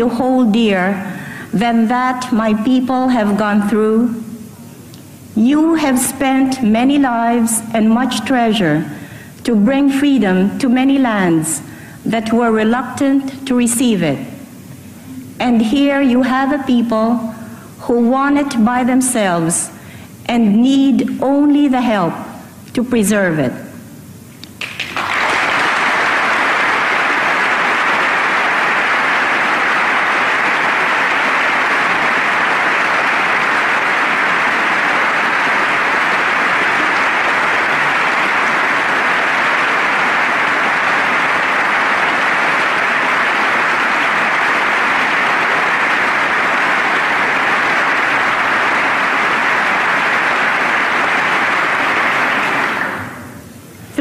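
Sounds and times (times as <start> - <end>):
large audience applauding: 24.6 - 53.4.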